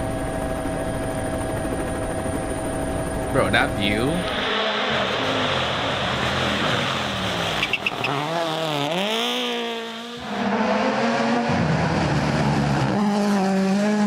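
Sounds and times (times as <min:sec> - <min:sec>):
rally car engine revving: 0:04.2 - 0:14.0.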